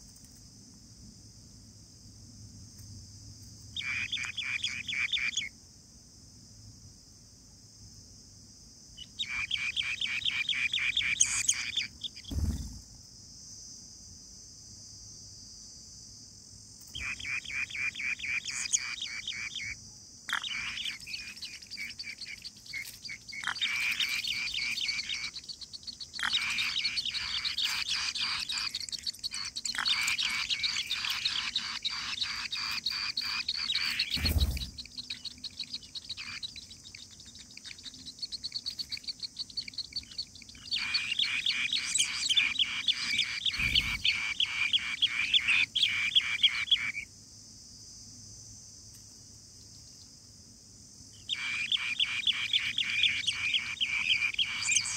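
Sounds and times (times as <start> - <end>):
high insect drone: 0.0 - 54.9
nestlings chirping: 3.7 - 5.5, 9.0 - 12.8, 16.9 - 47.0, 51.2 - 54.9.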